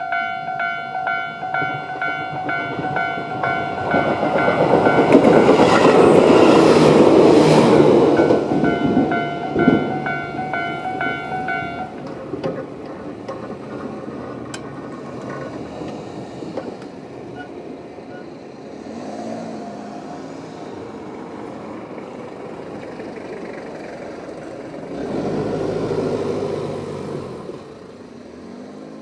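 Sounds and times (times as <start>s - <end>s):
cars driving over tracks: 0.0s - 29.0s
loud vehicle passing: 2.9s - 11.9s, 18.7s - 29.0s.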